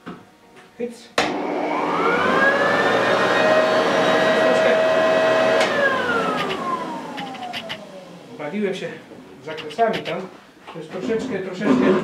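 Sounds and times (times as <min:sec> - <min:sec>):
leaf blower motor whining: 0:01.3 - 0:08.4.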